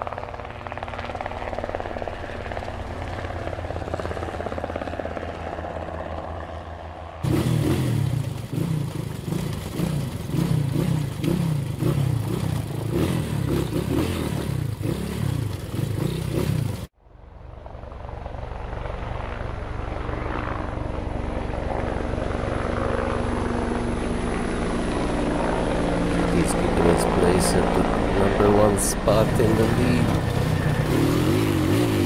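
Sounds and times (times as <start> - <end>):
drone propellers humming: 0.0 - 32.0
dirt bike engine revving: 7.2 - 16.9, 26.1 - 32.0.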